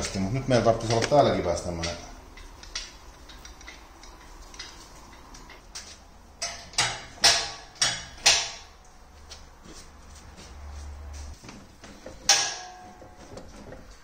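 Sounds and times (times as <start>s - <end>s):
sharp metallic knocks: 6.4s - 8.8s, 12.1s - 13.2s.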